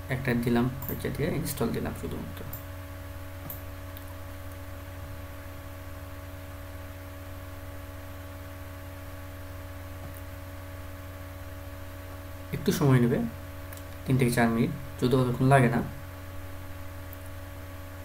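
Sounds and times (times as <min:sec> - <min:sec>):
electrical mains hum: 0:00.0 - 0:18.0
microphone hiss: 0:00.0 - 0:18.0.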